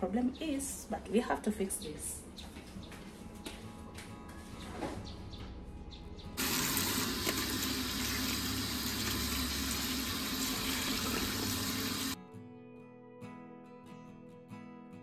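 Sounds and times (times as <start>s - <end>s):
tap water running: 6.4s - 12.2s.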